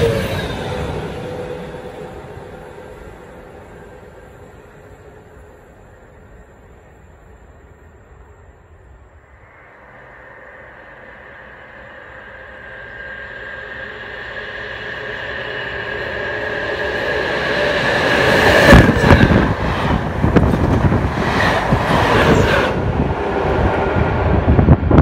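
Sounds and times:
train passing at speed: 0.0s - 25.0s.

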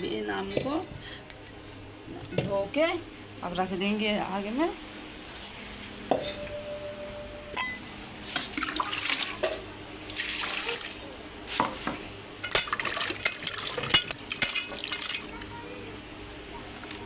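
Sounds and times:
metal bowl clinking and ringing: 6.2s - 7.9s
water sloshing and splashing: 8.3s - 11.2s, 12.6s - 15.3s.

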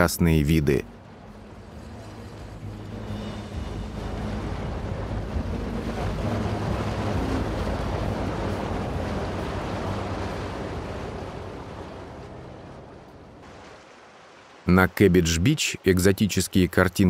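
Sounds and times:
ferry engine humming: 0.0s - 13.4s
water rushing along hull: 0.0s - 17.0s
wind buffeting microphone: 1.0s - 13.6s.

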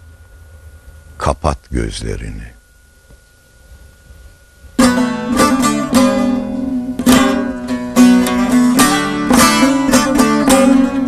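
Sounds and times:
long-necked lute plucked: 4.8s - 11.0s.

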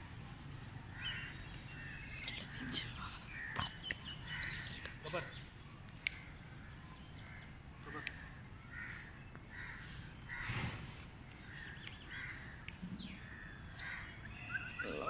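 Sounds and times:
crow cawing: 7.9s - 10.6s, 11.4s - 15.0s.

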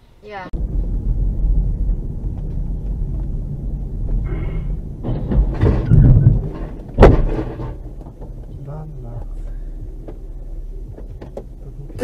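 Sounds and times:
vehicle road and engine rumble: 0.0s - 12.0s
rising rush: 0.6s - 8.5s
loud sharp crash: 4.4s - 8.0s.

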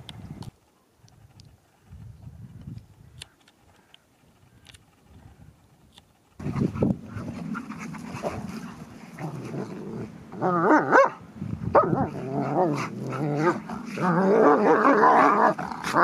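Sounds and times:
dogs growling: 6.4s - 11.1s, 11.7s - 16.0s
dogs yowling: 7.3s - 16.0s.

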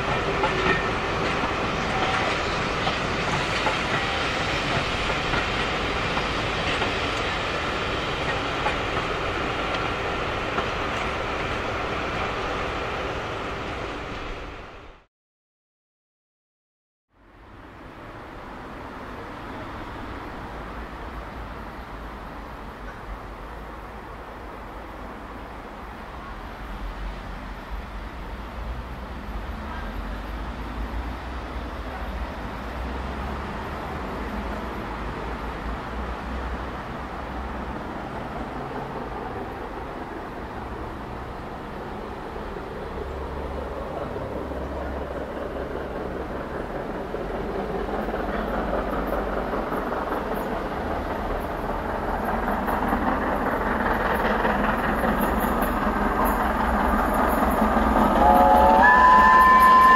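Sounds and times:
distant steam locomotive rumble and hiss: 0.0s - 15.1s, 17.2s - 59.9s.

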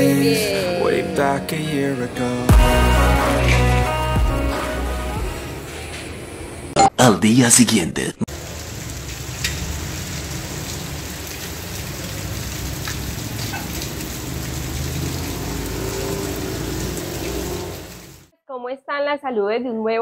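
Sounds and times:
steady rain falling: 8.3s - 18.3s
raindrop ticks: 8.6s - 15.9s.

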